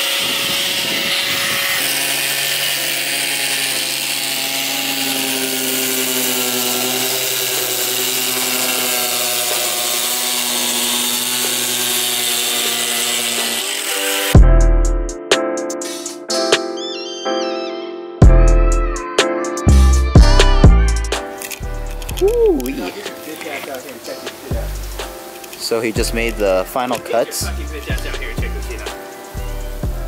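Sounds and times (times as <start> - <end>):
angle grinder cutting wood: 0.0 - 14.6, 18.2 - 30.0
loud music with a beat: 14.4 - 16.8, 18.2 - 21.3.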